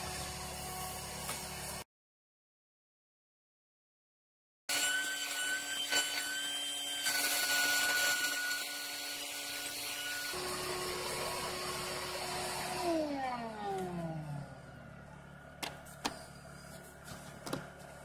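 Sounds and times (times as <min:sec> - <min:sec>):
shop vac whining: 0:10.3 - 0:18.0.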